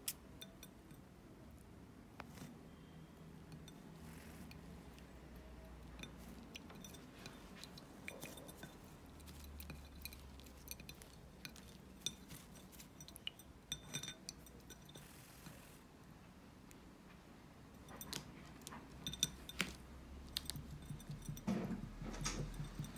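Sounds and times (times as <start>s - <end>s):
clinks on a ceramic bowl: 5.9s - 15.1s, 19.0s - 22.9s.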